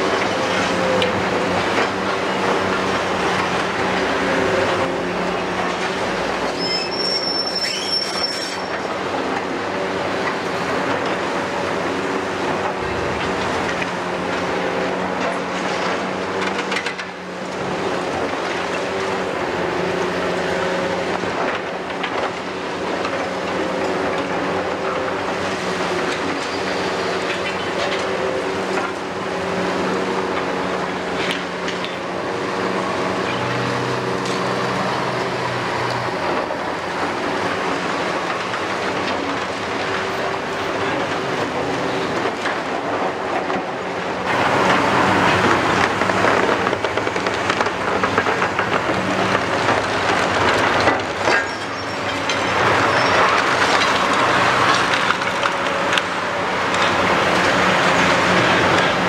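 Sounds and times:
excavator diesel engines and hydraulics: 0:00.0 - 0:59.0
high metallic squeal: 0:06.5 - 0:08.9.

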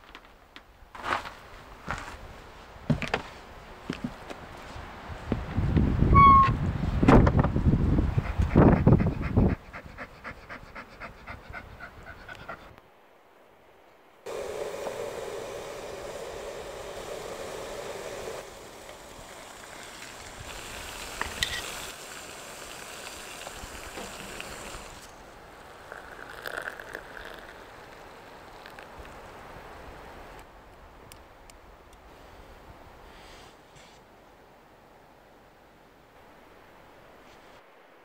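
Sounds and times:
dog panting quickly: 0:08.1 - 0:12.8
water pouring from mug: 0:25.7 - 0:29.2.

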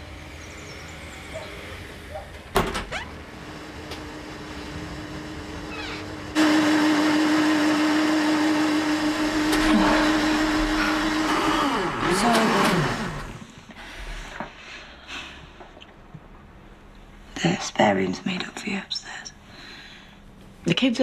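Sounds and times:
blender motor whine: 0:03.0 - 0:13.7.

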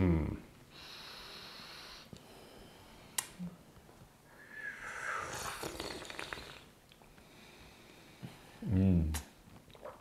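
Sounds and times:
person slurping tea: 0:04.7 - 0:06.7.

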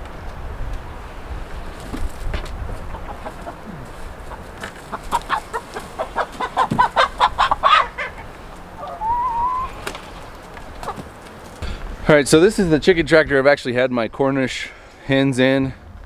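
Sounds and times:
hen clucking: 0:02.5 - 0:11.4.

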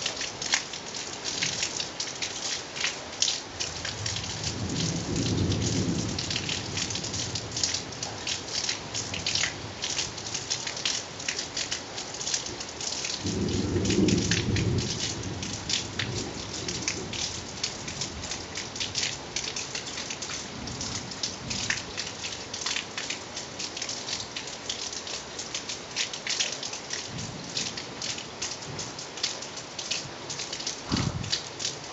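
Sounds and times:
steady rain: 0:00.0 - 0:31.9
thunder rumble: 0:30.9 - 0:31.4.

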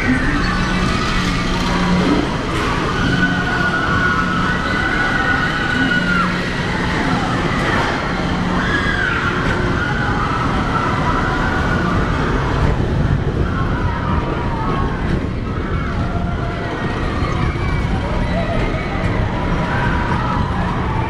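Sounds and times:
long high wavering tones: 0:00.0 - 0:12.6
low hum: 0:00.0 - 0:21.0
ride car rumble: 0:00.0 - 0:21.0.

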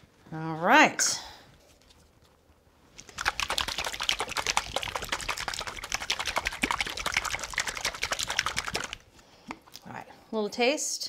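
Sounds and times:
liquid sloshing in shaken container: 0:03.0 - 0:09.1.

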